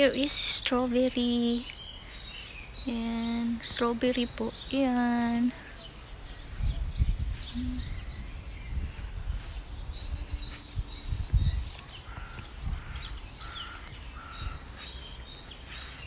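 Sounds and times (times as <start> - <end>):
small birds chirping: 0.0 - 16.0
wind buffeting microphone: 5.3 - 16.0.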